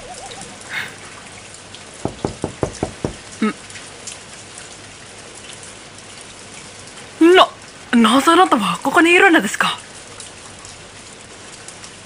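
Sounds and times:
steady rain falling: 0.0 - 12.0
thumps: 2.0 - 3.5.

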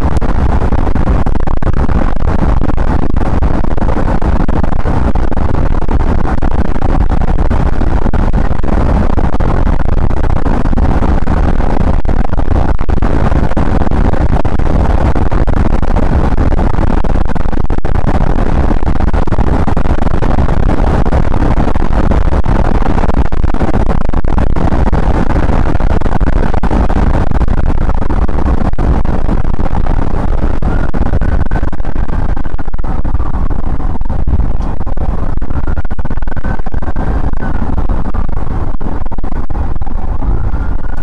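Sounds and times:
car road and engine noise: 0.0 - 41.0.

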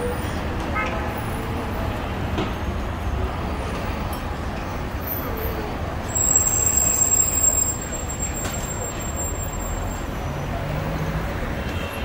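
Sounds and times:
road traffic noise: 0.0 - 12.0
high steady squeal: 6.0 - 10.1.

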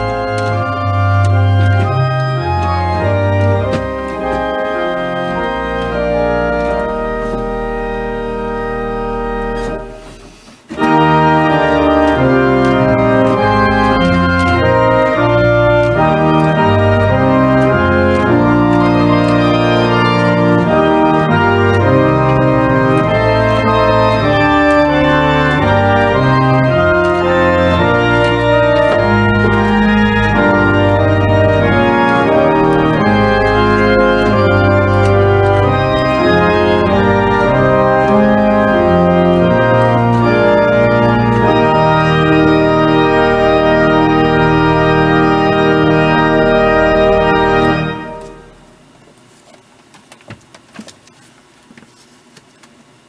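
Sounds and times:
church pipe organ playing hymn: 0.0 - 48.9.

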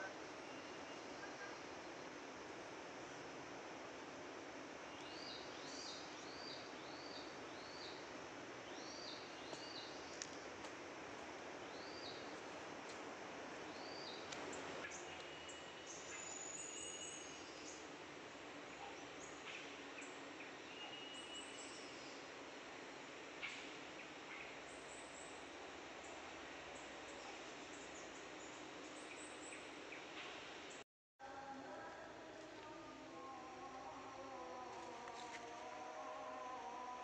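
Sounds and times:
background hiss: 0.0 - 37.0
birds chirping: 4.8 - 10.6, 11.6 - 18.0.

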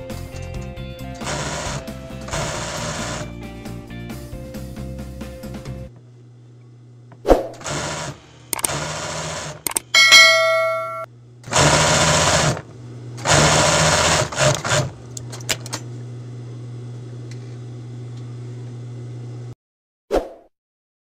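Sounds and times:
sewing machine motor humming: 1.1 - 3.3, 7.6 - 9.9, 11.4 - 15.7
sewing machine stitching: 1.2 - 3.3, 7.6 - 9.9, 11.4 - 15.0
sewing machine clicks: 8.5 - 9.9.

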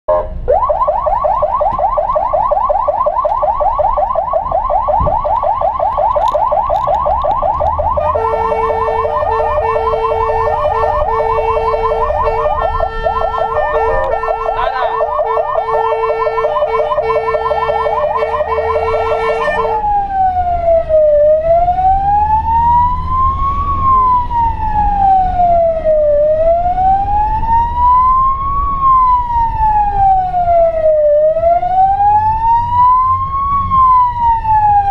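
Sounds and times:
emergency siren: 0.1 - 34.9
steady horn note: 8.0 - 19.8.

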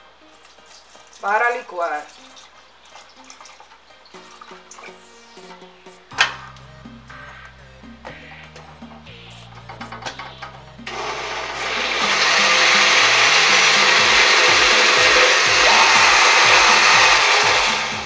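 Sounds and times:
blender running: 10.9 - 18.0.

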